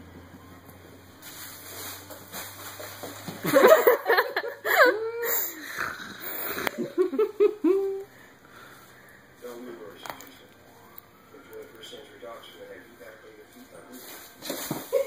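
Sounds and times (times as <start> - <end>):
tissue paper crinkling: 1.2 - 3.4
person laughing: 3.4 - 5.6, 6.2 - 8.1.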